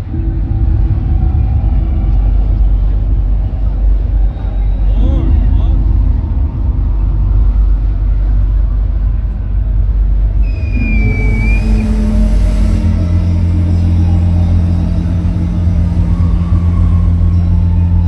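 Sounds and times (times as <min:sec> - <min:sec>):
deep bass drone: 0:00.0 - 0:18.0
electronic music over sound system: 0:10.4 - 0:18.0
held synth tones: 0:10.4 - 0:18.0
short high tone sliding down: 0:10.4 - 0:18.0.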